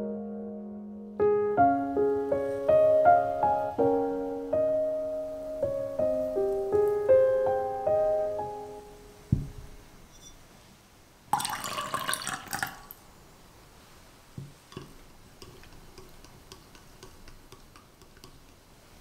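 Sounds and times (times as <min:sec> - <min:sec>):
soft knocks: 0:09.3 - 0:09.8, 0:14.4 - 0:15.0
glass set down thud: 0:09.3 - 0:10.4
liquid pouring into a glass: 0:11.3 - 0:13.0.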